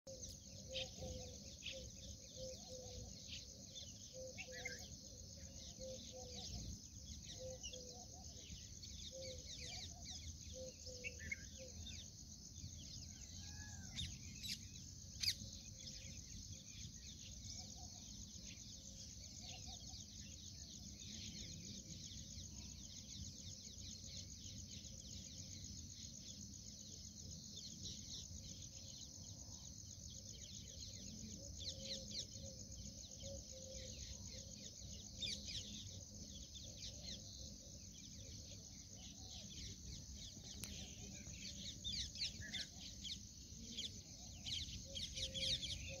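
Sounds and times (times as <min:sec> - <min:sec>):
birds calling: 0:00.1 - 0:12.1.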